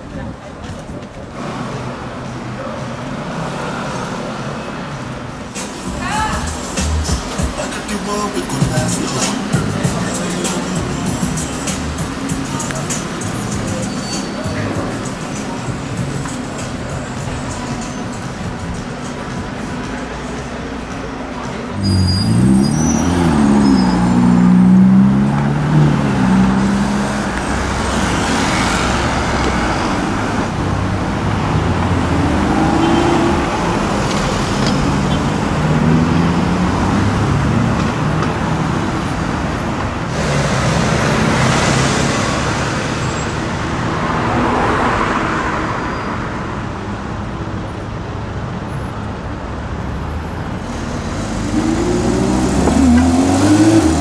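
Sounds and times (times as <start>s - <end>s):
cars passing: 0.0s - 54.0s
city traffic: 0.0s - 54.0s
sports car engine revving: 50.7s - 54.0s.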